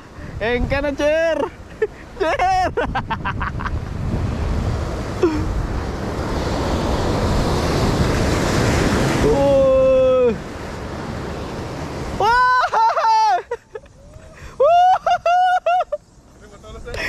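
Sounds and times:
wind on microphone: 0.0s - 12.4s
surf crashing over rocks: 0.0s - 17.0s.

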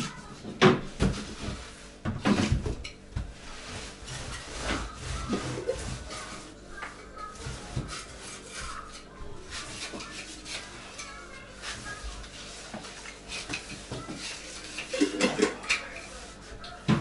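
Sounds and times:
kitchenware clinking and scraping: 0.0s - 17.0s.

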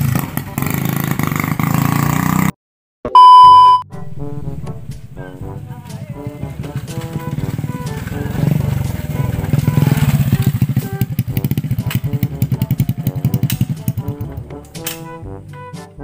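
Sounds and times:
small motorcycle engine: 0.0s - 2.5s, 6.3s - 14.2s
background music: 3.4s - 16.0s.

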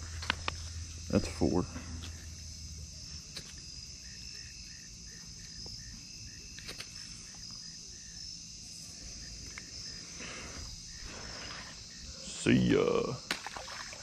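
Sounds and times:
insects trilling: 0.0s - 14.0s.

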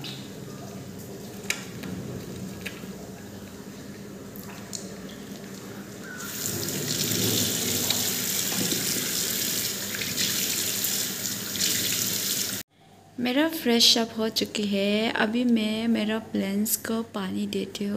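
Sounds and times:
water running into washbasin: 0.0s - 12.6s.

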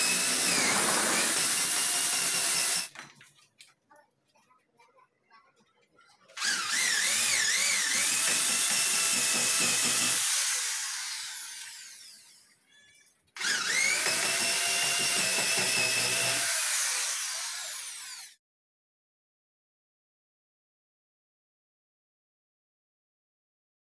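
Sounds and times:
electric drill drilling wood: 0.0s - 3.0s, 6.4s - 12.6s, 13.4s - 18.4s.

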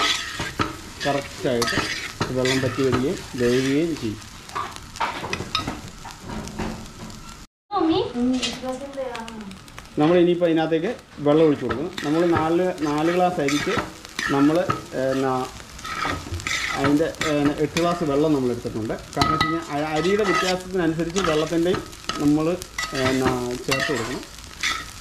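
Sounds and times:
spatula scraping metal pot: 0.0s - 3.8s, 11.9s - 18.0s, 19.3s - 25.0s.

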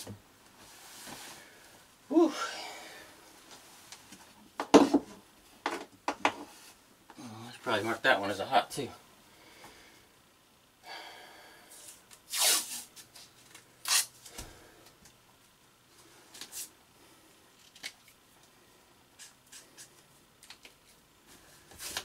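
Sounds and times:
tape pulled off a roll: 12.1s - 14.5s, 21.7s - 22.0s.

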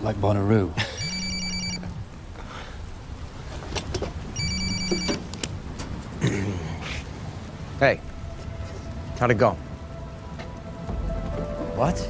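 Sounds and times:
mobile phone ringing: 0.9s - 1.9s, 4.4s - 5.3s.

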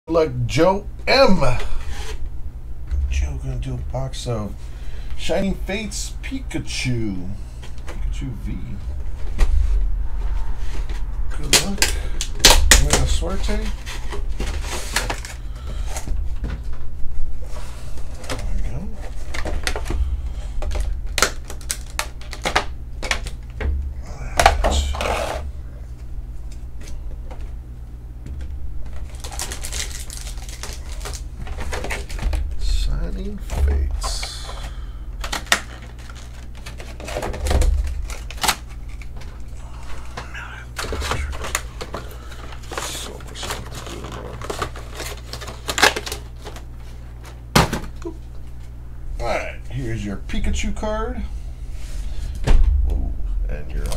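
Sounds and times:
low electrical hum: 0.1s - 53.9s
plastic packaging clicks and snaps: 11.4s - 13.6s, 20.6s - 23.6s, 28.9s - 32.5s, 35.2s - 39.4s, 40.8s - 48.0s
plastic crinkling: 20.6s - 23.5s, 28.8s - 32.5s, 34.0s - 40.2s, 40.8s - 47.4s.

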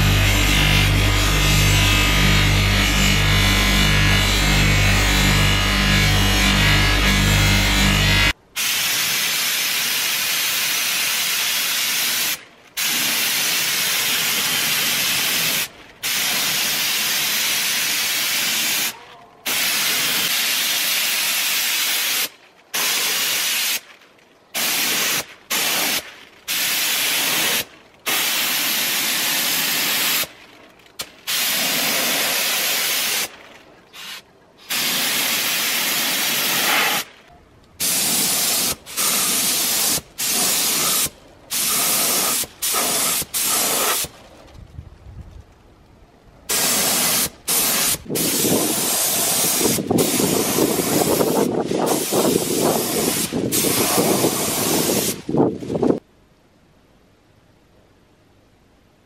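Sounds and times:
paint spray gun hissing: 0.0s - 6.3s, 8.6s - 18.9s, 19.5s - 23.8s, 24.6s - 30.3s, 31.3s - 33.3s, 34.0s - 37.1s, 37.8s - 44.1s, 46.5s - 55.2s.

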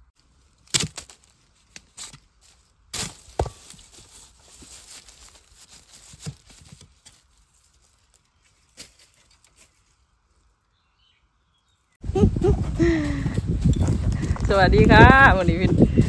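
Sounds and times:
dry leaves and twigs crackling: 0.1s - 10.9s
twigs snapping: 0.4s - 10.0s.

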